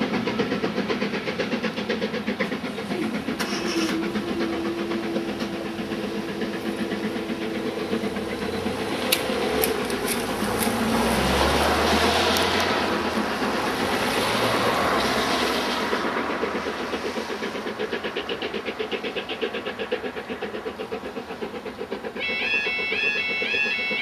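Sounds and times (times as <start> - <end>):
train rumble: 0.0 - 24.0
level crossing alarm warbling: 22.2 - 24.0.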